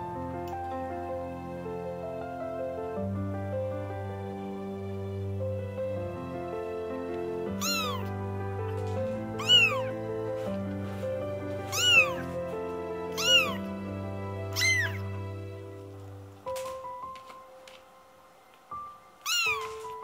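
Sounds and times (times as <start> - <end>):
soft background music: 0.0 - 20.0
kitten meowing: 7.6 - 8.1, 9.4 - 10.0, 11.6 - 12.3, 13.1 - 13.7, 14.5 - 15.1, 19.2 - 20.0.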